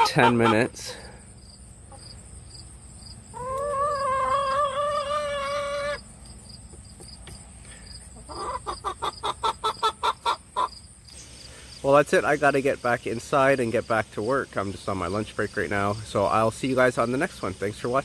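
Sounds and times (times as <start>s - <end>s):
chicken clucking: 0.0s - 1.0s, 1.8s - 2.3s, 3.3s - 7.4s, 8.0s - 10.9s
chicken calling: 0.0s - 1.1s, 1.7s - 6.2s, 8.0s - 10.9s.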